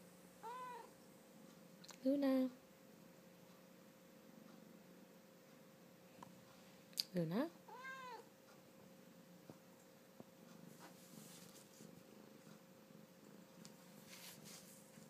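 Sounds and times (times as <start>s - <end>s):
cat purring: 7.7s - 15.0s.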